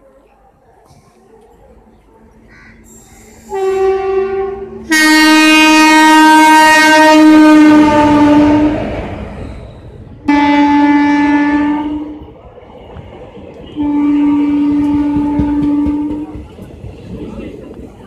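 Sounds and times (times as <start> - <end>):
rumble of moving train: 0.0 - 18.0
train horn: 3.4 - 9.3, 10.2 - 12.3, 13.6 - 16.4.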